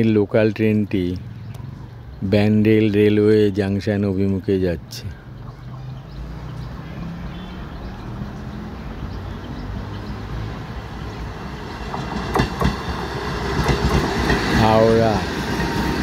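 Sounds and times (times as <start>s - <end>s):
train wheels clacking over rail joints: 11.8s - 16.0s.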